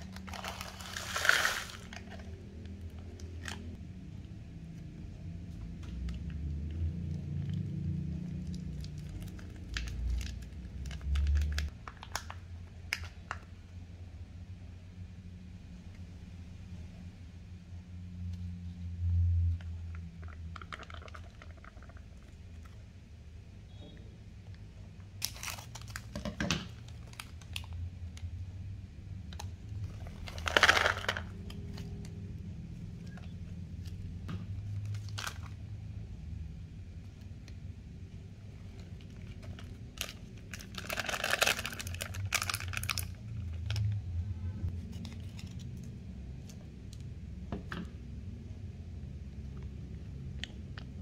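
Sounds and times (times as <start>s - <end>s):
sachet crinkling: 0.0s - 3.8s, 25.2s - 26.2s, 29.8s - 32.2s, 38.7s - 43.9s.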